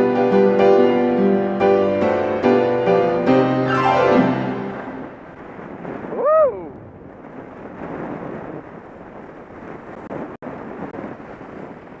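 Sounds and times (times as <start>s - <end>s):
rising and falling tone: 1.6s - 5.3s
wind buffeting microphone: 4.2s - 12.0s.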